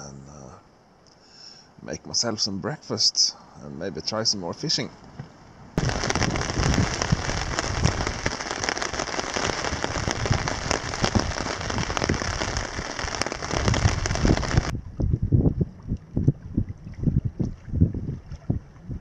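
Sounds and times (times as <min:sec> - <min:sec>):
heavy rain on a tarp: 0:05.8 - 0:14.7
wind on microphone: 0:05.8 - 0:19.0.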